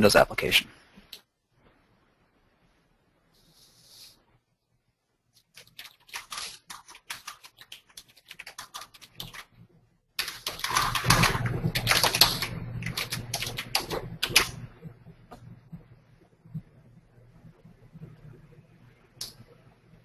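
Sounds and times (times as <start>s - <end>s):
computer keyboard typing: 5.4s - 9.5s, 10.2s - 14.7s.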